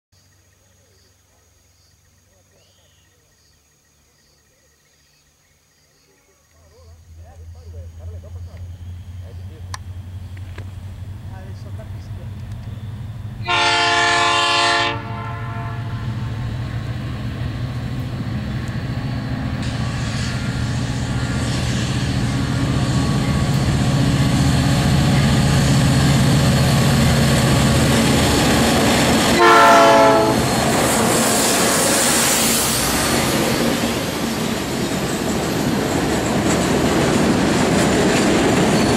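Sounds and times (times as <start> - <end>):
locomotive engine rumble: 6.6 - 38.9
train horn blasts: 13.4 - 16.6, 29.2 - 30.7
train wagons clattering on rails: 32.9 - 38.9.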